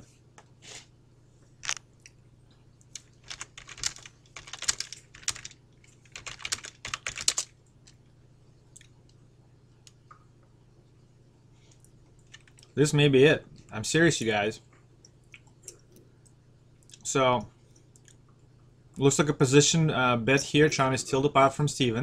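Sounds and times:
faint low hum: 0.0s - 22.0s
computer keyboard typing: 3.0s - 7.5s, 12.2s - 12.7s.

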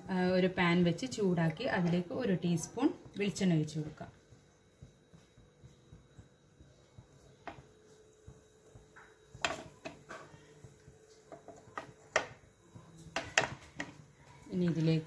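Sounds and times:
faint steady hum: 0.0s - 15.0s
cookware clicks and knocks: 13.2s - 14.0s.

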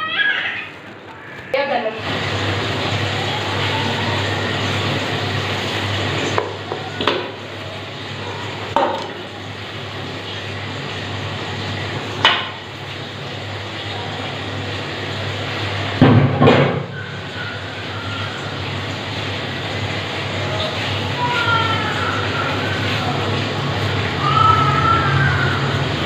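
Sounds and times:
steady background noise: 0.0s - 26.0s.

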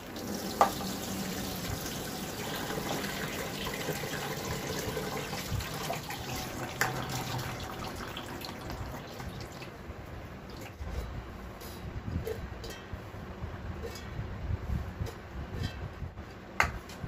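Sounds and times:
water splashing in steel sink: 0.0s - 9.8s.

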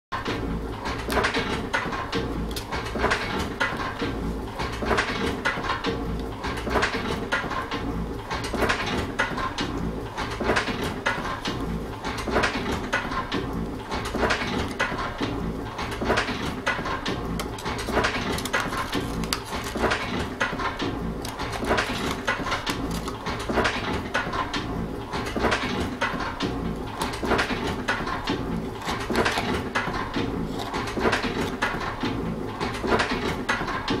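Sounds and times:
low rhythmic clatter: 0.2s - 34.0s
paperboard carton being folded: 17.4s - 20.3s, 21.2s - 23.6s.

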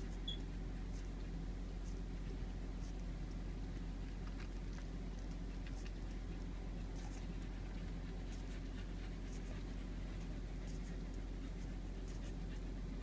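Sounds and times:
steady low hum: 0.0s - 13.0s
puppy sucking from a bottle: 3.8s - 9.8s.

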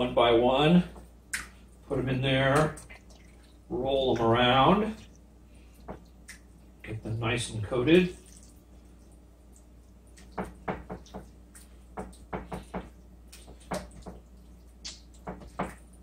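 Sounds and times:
wet squishes of chicken: 1.3s - 3.8s, 7.9s - 16.0s.

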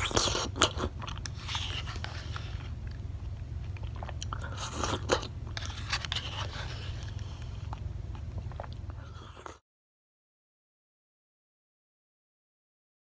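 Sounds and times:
wet eating mouth sounds: 0.0s - 9.6s.

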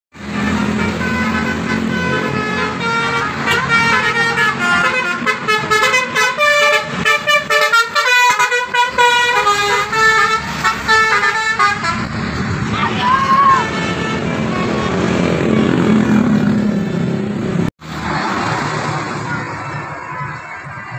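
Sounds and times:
traffic: 0.1s - 20.9s
bus horn playing melodic tune: 0.2s - 12.4s, 13.5s - 15.6s.

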